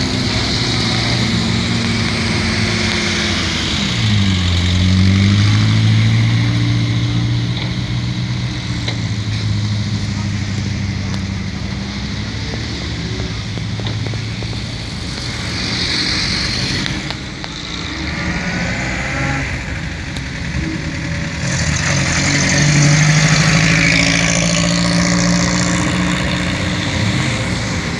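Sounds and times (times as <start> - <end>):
car engines running at low revs: 0.0 - 27.9.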